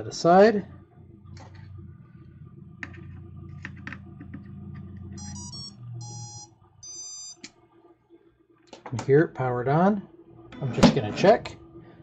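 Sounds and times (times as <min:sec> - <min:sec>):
longer beeps: 0:05.2 - 0:07.4
short musical beeps: 0:05.2 - 0:07.4.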